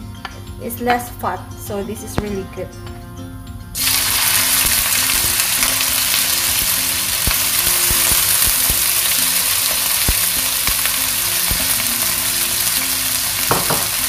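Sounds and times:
chicken sizzling in hot oil: 0:03.8 - 0:14.0
wooden spatula knocking a pan: 0:13.5 - 0:14.0.

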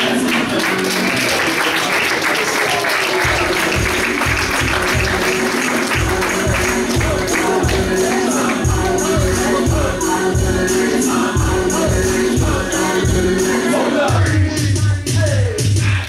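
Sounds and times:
audience applauding: 0:00.0 - 0:08.6
recorded music with bass beat: 0:03.2 - 0:16.0.

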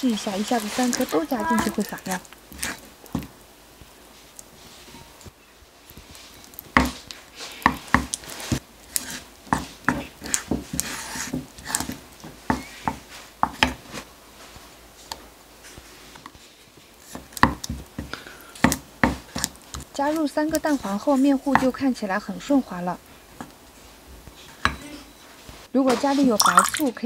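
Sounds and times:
wooden spoon stirring batter in bowl: 0:00.0 - 0:22.3.

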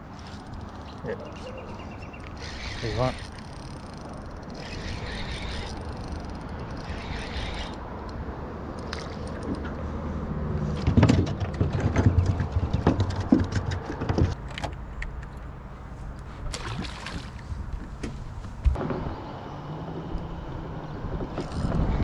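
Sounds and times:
fishing tackle clicking and rattling: 0:00.2 - 0:01.5, 0:02.2 - 0:08.2
electric trolling motor humming: 0:02.1 - 0:08.1.

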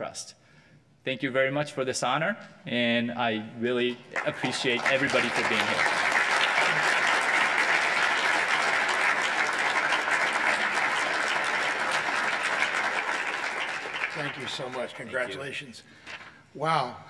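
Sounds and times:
audience applauding: 0:04.1 - 0:15.4.

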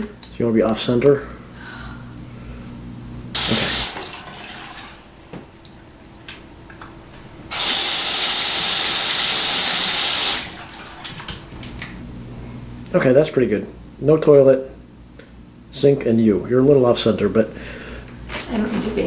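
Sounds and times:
sink tap running water: 0:03.4 - 0:05.5, 0:07.5 - 0:11.5.

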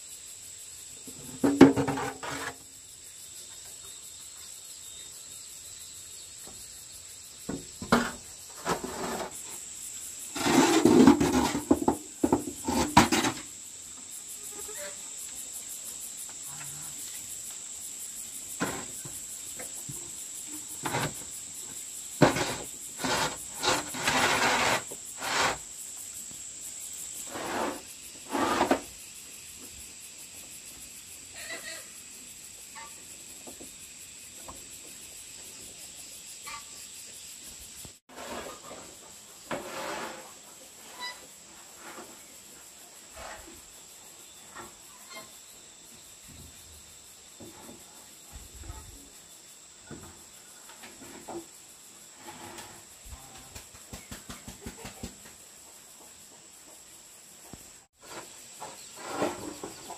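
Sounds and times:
insects droning: 0:00.0 - 0:59.9
knocks and scraping of building work: 0:01.0 - 0:02.8, 0:07.3 - 0:15.0, 0:18.4 - 0:29.0, 0:32.8 - 0:35.7, 0:38.1 - 0:45.4, 0:47.3 - 0:49.1, 0:49.8 - 0:59.9.

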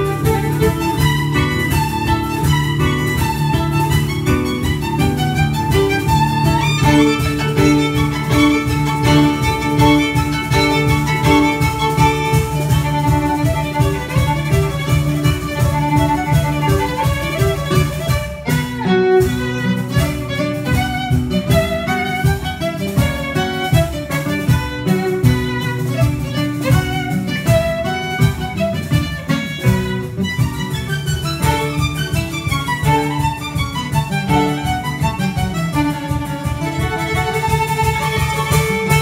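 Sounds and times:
hand-played frame drum beat: 0:00.0 - 0:39.0
strummed classical guitar: 0:00.0 - 0:39.0
violin melody: 0:00.0 - 0:39.0.

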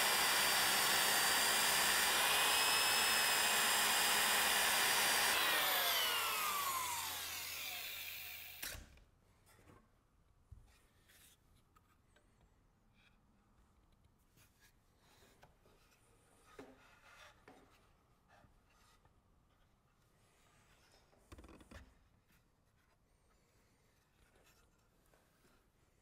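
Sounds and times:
power tool running on wood: 0:00.0 - 0:08.8
tool winding down whine: 0:00.0 - 0:08.9.

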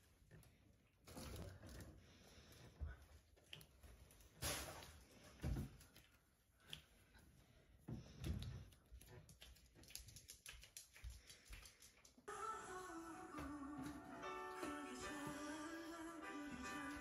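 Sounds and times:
puppy claws clicking on floor: 0:08.3 - 0:12.3
background music: 0:12.3 - 0:17.0.

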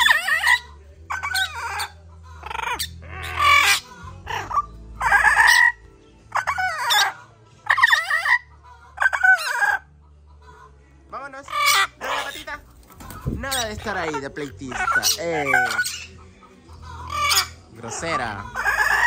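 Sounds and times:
parrot squawking harshly: 0:00.0 - 0:09.8, 0:11.4 - 0:16.2, 0:16.8 - 0:19.0.

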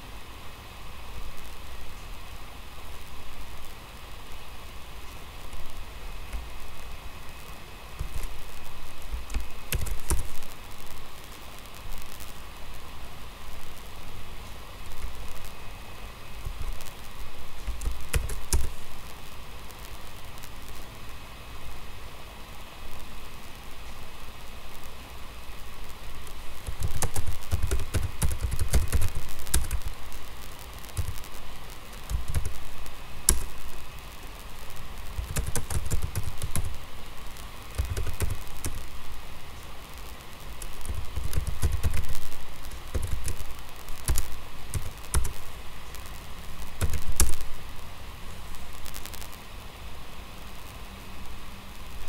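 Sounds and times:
steady hiss: 0:00.0 - 0:52.0
computer keyboard typing: 0:08.0 - 0:08.4, 0:09.1 - 0:10.4, 0:17.6 - 0:18.8, 0:26.6 - 0:29.9, 0:30.9 - 0:31.3, 0:31.9 - 0:32.7, 0:33.3 - 0:33.5, 0:35.2 - 0:36.8, 0:37.7 - 0:38.8, 0:40.6 - 0:45.4, 0:46.7 - 0:47.4.

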